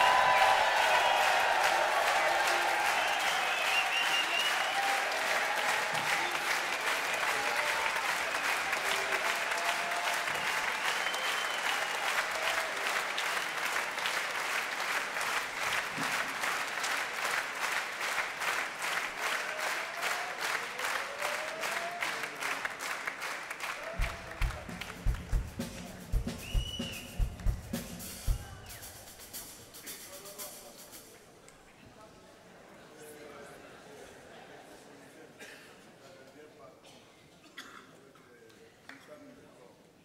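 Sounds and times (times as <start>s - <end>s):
audience applauding and cheering: 0.0s - 30.9s
drum kit playing: 23.9s - 31.2s.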